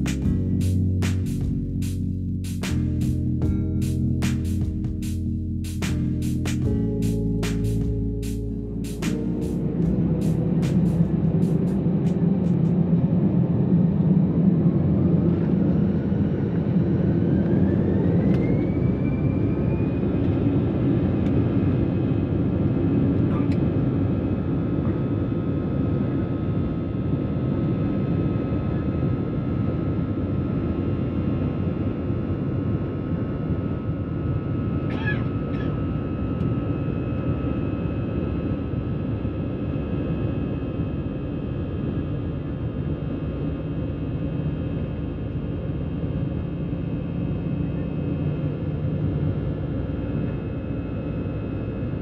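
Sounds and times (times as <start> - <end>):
jet engines spooling up: 4.2 - 14.0.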